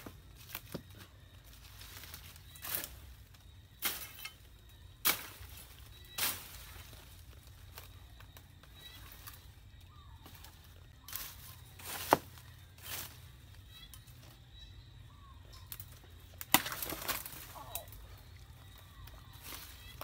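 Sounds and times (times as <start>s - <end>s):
branches rustling: 0.0s - 20.0s
machete chopping roots: 5.0s - 6.6s, 11.8s - 12.4s, 15.7s - 18.0s.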